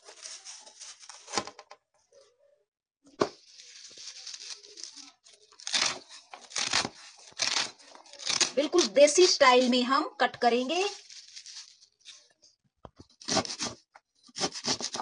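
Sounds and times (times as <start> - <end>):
leaves tearing and rustling: 3.4 - 9.4, 10.9 - 12.2.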